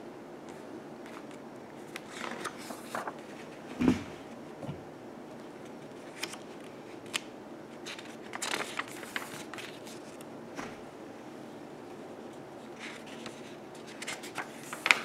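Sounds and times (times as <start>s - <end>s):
book page turning: 1.1s - 3.5s, 7.9s - 10.2s, 12.8s - 15.0s
paper crinkling: 1.1s - 3.6s, 5.5s - 7.2s, 7.8s - 10.2s, 12.6s - 15.0s.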